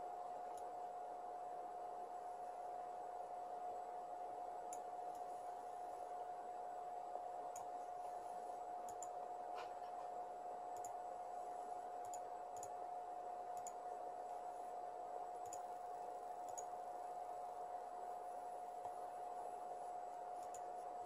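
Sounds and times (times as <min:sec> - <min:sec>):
computer mouse clicking: 0:00.5 - 0:00.7, 0:04.6 - 0:05.6, 0:07.5 - 0:07.9, 0:08.8 - 0:10.0, 0:10.7 - 0:11.0, 0:12.0 - 0:12.8, 0:13.5 - 0:14.4, 0:15.4 - 0:16.9, 0:20.1 - 0:21.0
steady high-pitched tone: 0:10.2 - 0:21.0.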